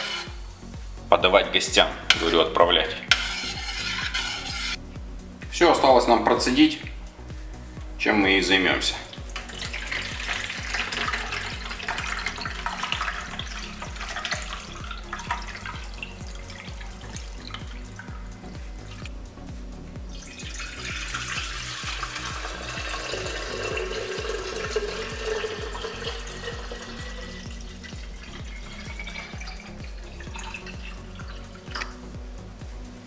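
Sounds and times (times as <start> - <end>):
liquid pouring into glass pitcher: 9.0 - 19.1, 20.1 - 31.9
liquid pouring through strainer: 9.0 - 19.1, 20.1 - 31.9.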